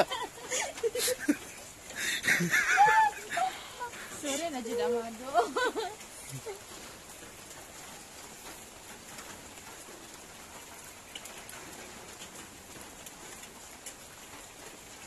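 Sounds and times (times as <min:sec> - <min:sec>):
drips ticking: 0:00.0 - 0:09.6
light rain hiss: 0:00.0 - 0:15.0.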